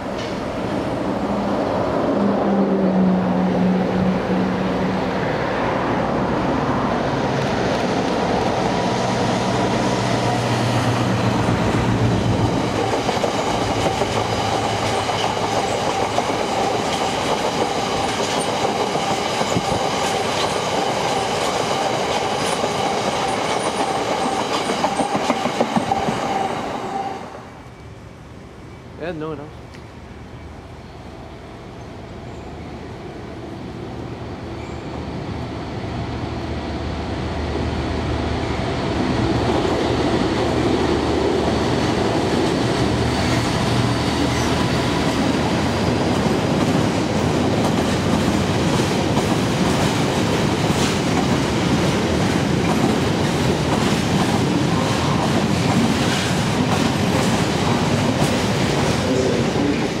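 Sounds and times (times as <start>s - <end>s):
diesel locomotive running through: 0.0s - 60.0s.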